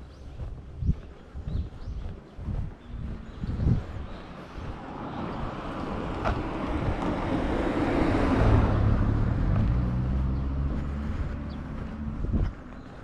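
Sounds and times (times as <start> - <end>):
car passing by: 3.2 - 13.0.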